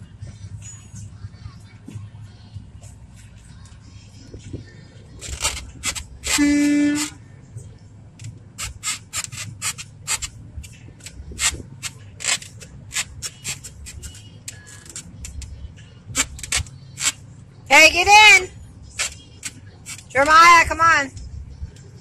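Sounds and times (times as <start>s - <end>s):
steady low rumble: 0.0s - 22.0s
phone handling scrapes: 5.2s - 7.2s, 8.6s - 10.3s, 11.0s - 15.1s, 16.2s - 17.2s
car horn blast: 6.2s - 7.2s.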